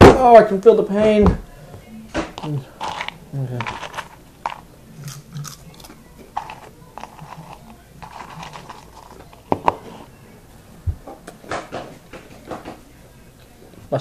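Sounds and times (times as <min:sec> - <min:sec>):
crunchy snacks being chewed: 0:02.8 - 0:09.4.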